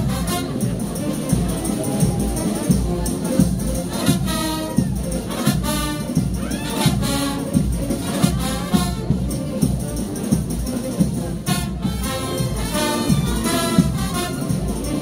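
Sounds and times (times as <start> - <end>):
brass phrases: 0.0 - 15.0
steady drum beat: 0.0 - 15.0.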